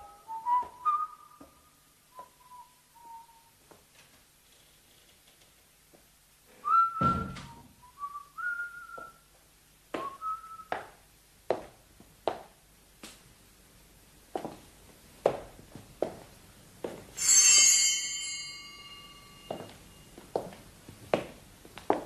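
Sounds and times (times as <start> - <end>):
person whistling a tune: 0.0 - 3.5, 6.6 - 9.2, 10.0 - 10.7
heavy thump: 7.0 - 7.6
footsteps: 8.9 - 13.2, 14.3 - 17.3, 18.5 - 22.0.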